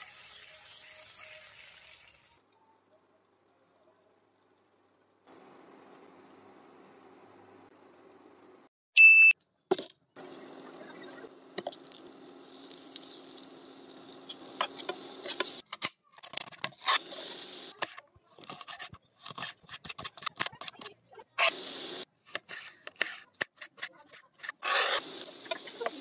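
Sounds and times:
oil hissing in frying pan: 0:00.0 - 0:02.4, 0:12.4 - 0:15.6, 0:21.4 - 0:22.1, 0:25.0 - 0:26.0.

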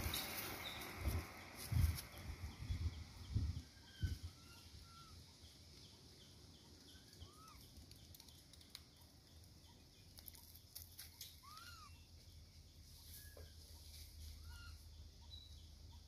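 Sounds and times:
bird chirps: 0:00.0 - 0:16.0
light regular ticking: 0:07.5 - 0:11.0.

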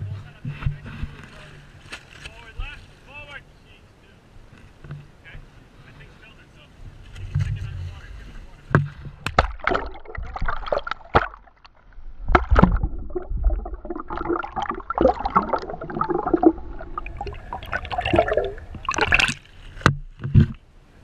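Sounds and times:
water splashing: 0:08.7 - 0:20.5
underwater gurgling and rushing: 0:09.1 - 0:20.6.

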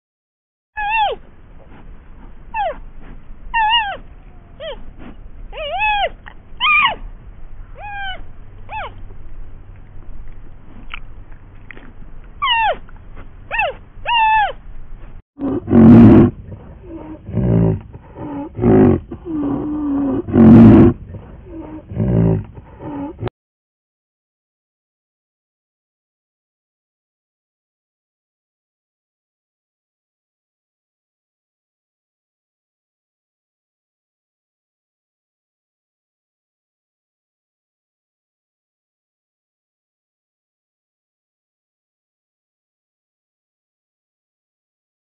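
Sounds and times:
high-pitched animal calls: 0:00.8 - 0:01.3, 0:02.5 - 0:02.8, 0:03.5 - 0:07.0, 0:07.6 - 0:09.0, 0:12.4 - 0:12.8, 0:13.5 - 0:14.6, 0:15.4 - 0:23.3
deep rough animal calls: 0:15.4 - 0:23.3.

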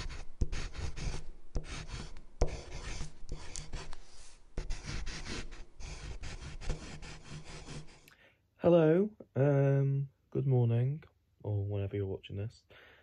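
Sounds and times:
pen scratching on paper: 0:00.0 - 0:08.1
pen tapping: 0:00.4 - 0:04.0.

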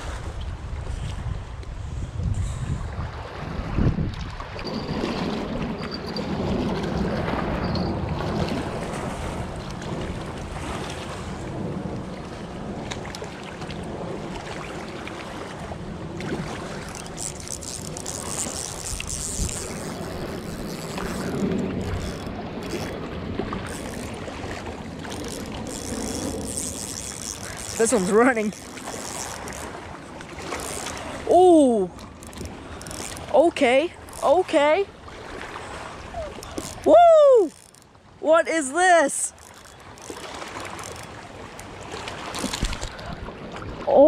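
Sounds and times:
wind buffeting microphone: 0:00.0 - 0:38.2
water washing against rocks: 0:13.2 - 0:37.8, 0:38.9 - 0:43.2.

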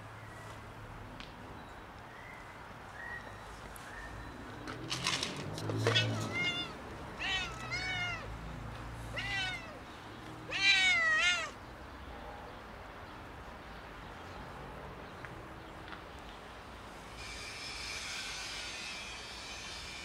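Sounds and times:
cat meowing: 0:05.8 - 0:08.3, 0:09.1 - 0:09.8, 0:10.4 - 0:11.6.

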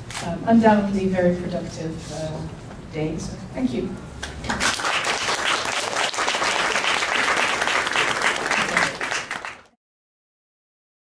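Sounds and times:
audience applauding: 0:04.4 - 0:09.8.

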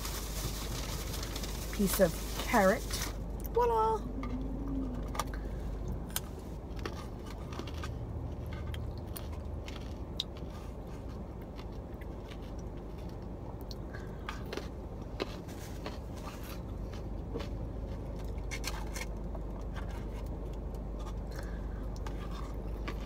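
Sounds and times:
carrot crunching: 0:00.0 - 0:03.5, 0:04.2 - 0:23.0
mouth sounds: 0:03.9 - 0:05.3.

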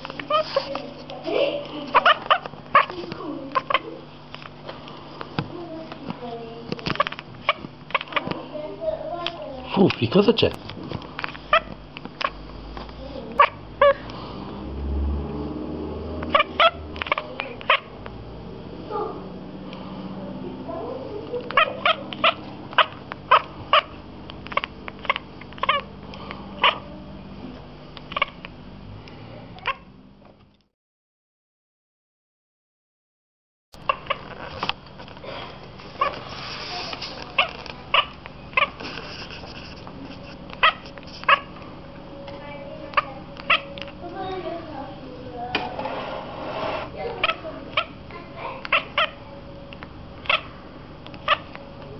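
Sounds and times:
cat chirping: 0:21.5 - 0:25.9.

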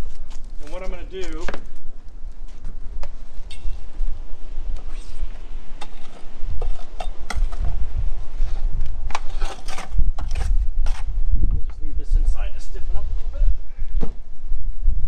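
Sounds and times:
trowel scraping plastic bucket: 0:08.5 - 0:11.1.

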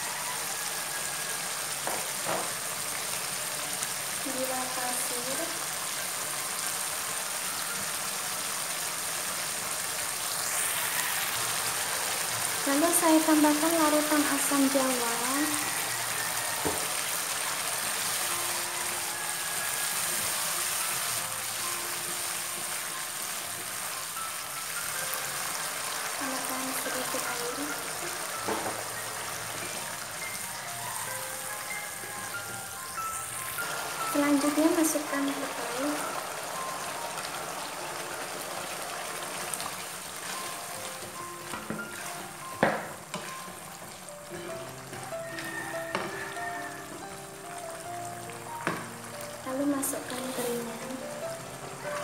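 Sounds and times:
paste sizzling in a wok: 0:00.0 - 0:52.0
spatula stirring in a wok: 0:39.1 - 0:46.2
spatula scraping a wok: 0:43.1 - 0:43.6.

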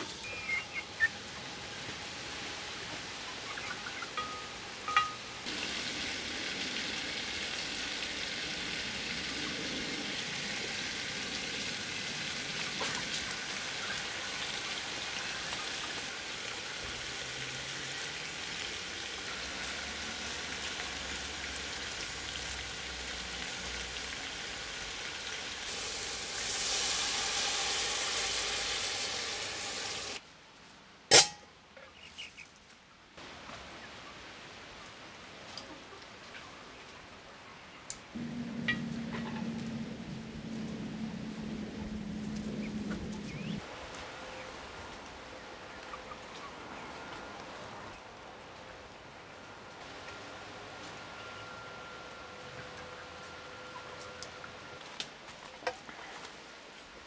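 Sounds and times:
food sizzling in a metal pot: 0:04.2 - 0:30.2.

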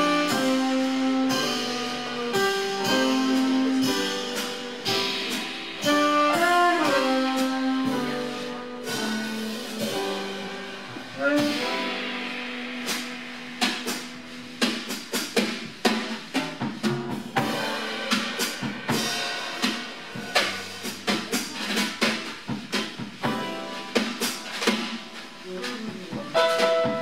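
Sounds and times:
saxophone line: 0:00.0 - 0:05.2, 0:05.8 - 0:10.6, 0:11.2 - 0:12.3
drum and cymbal hits: 0:00.0 - 0:27.0
jazz quartet playing: 0:00.0 - 0:27.0.

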